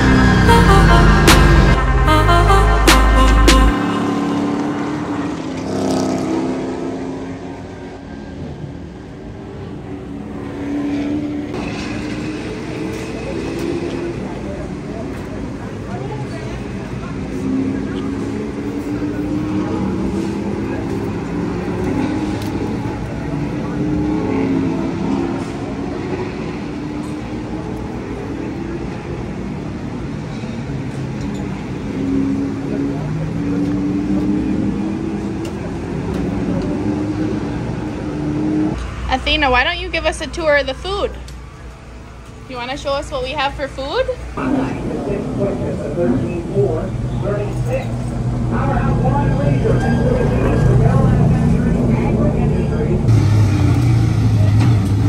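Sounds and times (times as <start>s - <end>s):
racing engines passing: 0.0s - 55.0s
faint voices: 31.5s - 53.2s.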